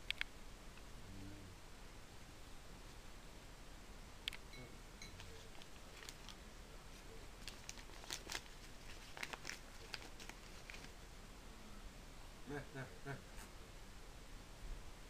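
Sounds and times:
paper crinkling and tearing: 5.2s - 6.4s, 7.4s - 11.0s.

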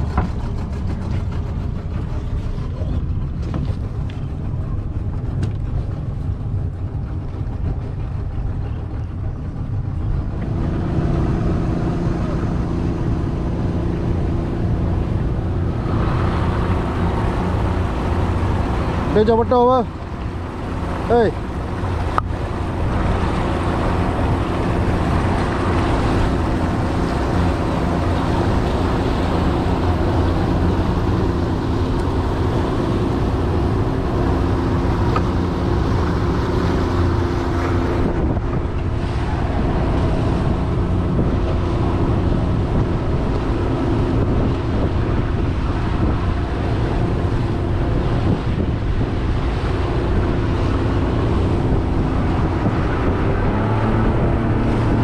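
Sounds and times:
outboard motor running: 0.0s - 55.0s
water rushing past hull: 0.0s - 55.0s
wind buffeting microphone: 0.0s - 55.0s.

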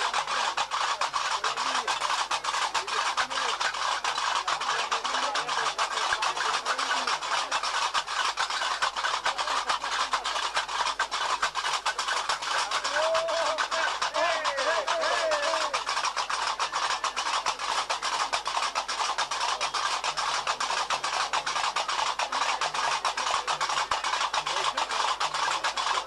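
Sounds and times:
faint chanting voices: 12.4s - 15.8s.

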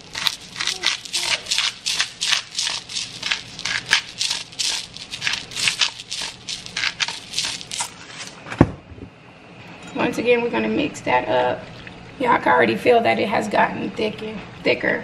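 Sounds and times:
pepper mill grinding: 0.0s - 8.4s.

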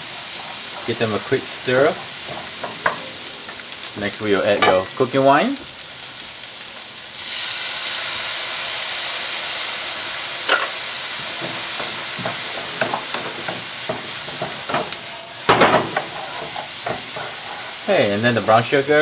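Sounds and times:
spatula scraping a wok: 0.0s - 3.2s, 10.4s - 18.0s
food sizzling in a wok: 0.0s - 19.0s.

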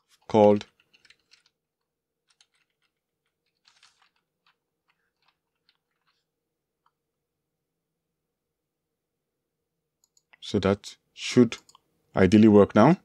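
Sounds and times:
faint keyboard typing: 0.0s - 7.0s, 10.0s - 10.5s.

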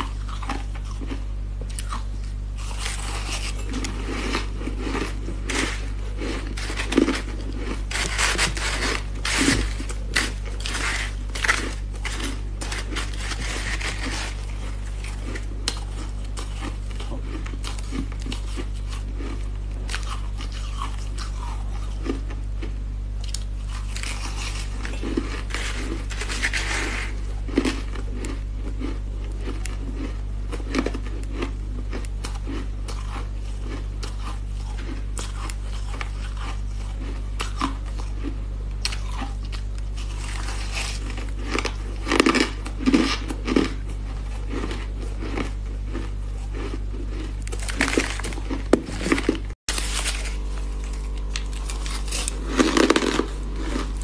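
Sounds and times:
steady low hum: 0.0s - 54.0s
person crunching ice: 2.6s - 22.2s, 23.2s - 54.0s
metal spoon scraping ice: 6.5s - 14.5s.

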